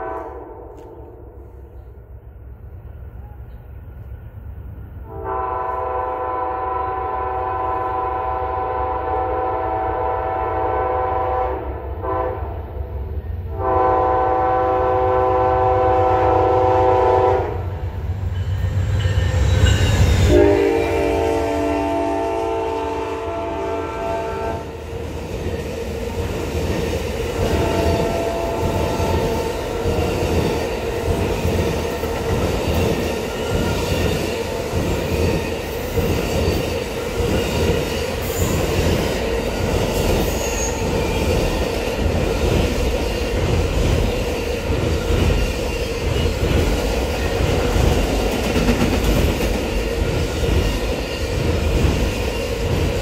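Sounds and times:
locomotive air horn: 0.0s - 1.1s, 5.0s - 12.6s, 13.5s - 17.7s, 20.2s - 24.7s, 27.4s - 29.8s
locomotive passing rush: 12.9s - 53.0s
train wheels clattering on rails: 24.7s - 53.0s.

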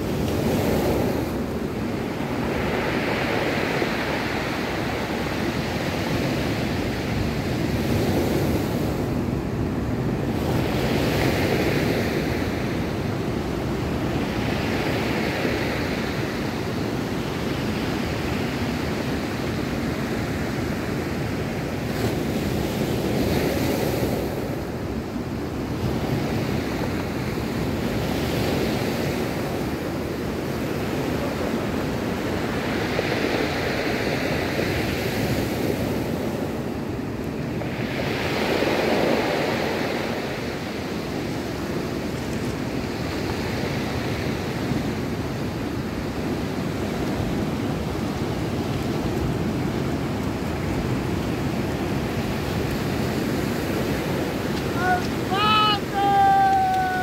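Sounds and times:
surf breaking on cobble beach: 37.6s - 57.0s.

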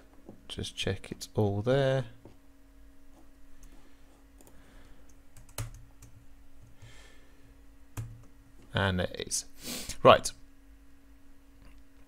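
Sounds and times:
faint steady hum: 0.0s - 12.0s
computer keyboard clicks: 4.4s - 6.8s, 8.0s - 8.3s.

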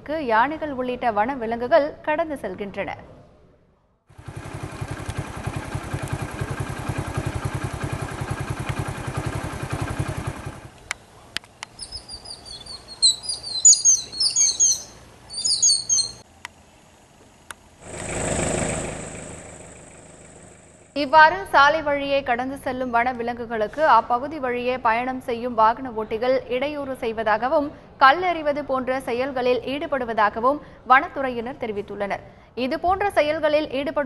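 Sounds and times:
vehicle engine running: 4.1s - 21.0s
birds chirping: 11.0s - 16.2s
vehicle passing by: 17.8s - 20.9s.

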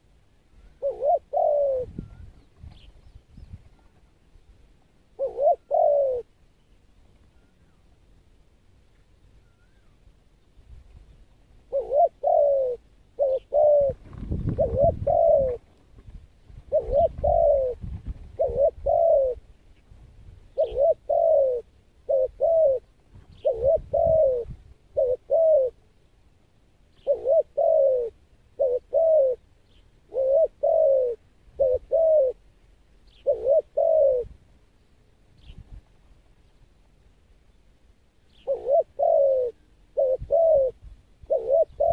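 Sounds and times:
dove cooing: 0.6s - 2.9s, 5.1s - 6.4s, 11.6s - 15.7s, 16.6s - 19.6s, 20.5s - 25.9s, 26.9s - 32.5s, 33.1s - 34.4s, 38.3s - 41.9s.

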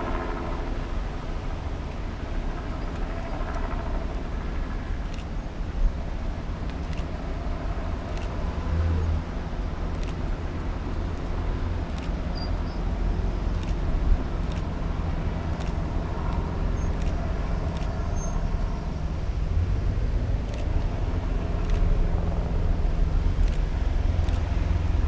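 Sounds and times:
cars passing: 6.2s - 25.0s.

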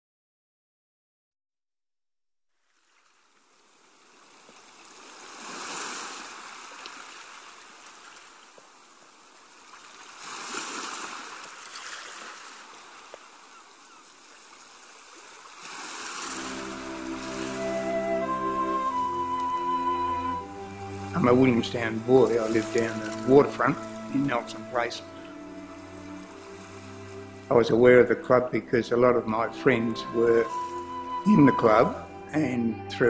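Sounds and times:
waves breaking on beach: 2.7s - 27.5s
music: 16.3s - 33.0s.

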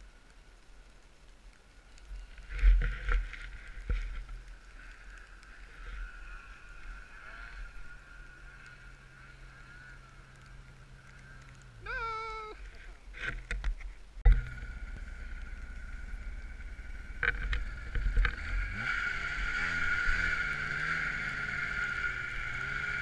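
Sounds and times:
snowmobile engines whining: 3.6s - 13.2s, 14.4s - 23.0s.

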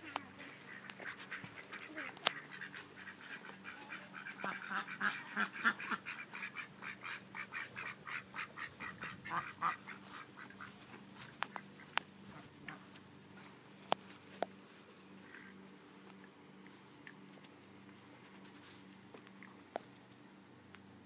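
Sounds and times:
ducks quacking: 0.0s - 13.7s.

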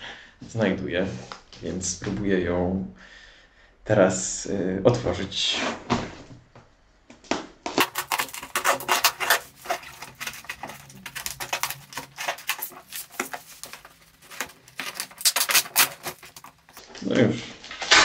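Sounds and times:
blade cutting tape on cardboard: 7.8s - 16.8s.

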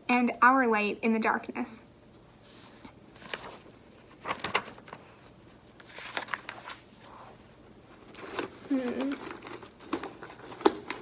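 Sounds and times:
rustling and knocks of objects: 8.0s - 11.0s.

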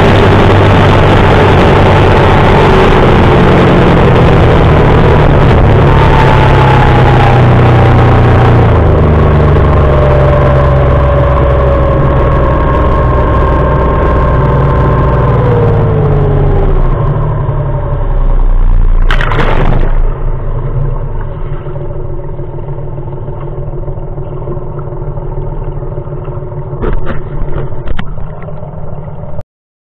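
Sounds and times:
outboard motor slowing: 0.0s - 29.4s
water churning: 18.0s - 29.4s
loud rush of splashing: 18.6s - 20.7s.

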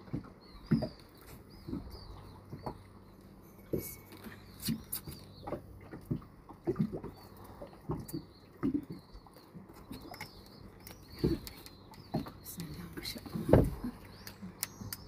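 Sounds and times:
fish handling knocks and rustles: 0.0s - 2.8s, 7.7s - 14.0s.

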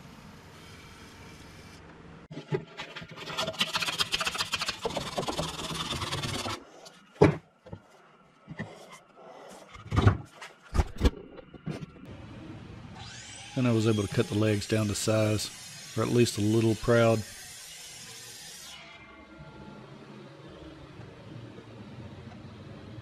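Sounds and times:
scraping and rubbing on wood: 2.4s - 7.0s.

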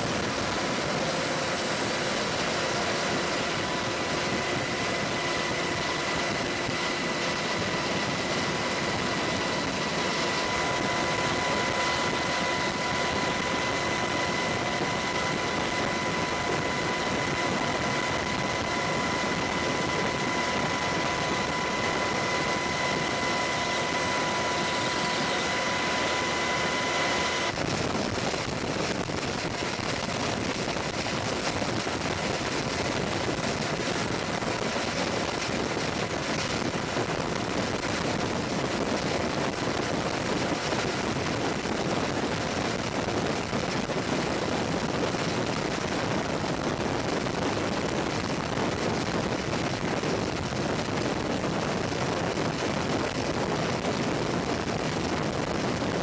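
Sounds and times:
helicopter engines rushing: 0.0s - 56.0s
high steady turbine whine: 0.0s - 56.0s.

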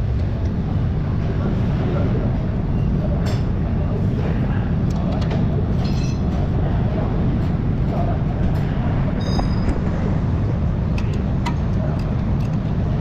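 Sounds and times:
low garage rumble: 0.0s - 13.0s.

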